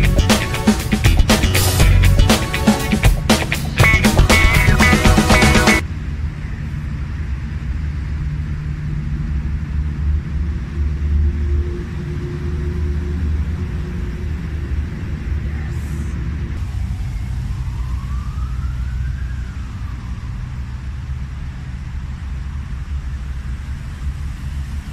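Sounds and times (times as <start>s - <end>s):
background music: 0.0s - 5.8s.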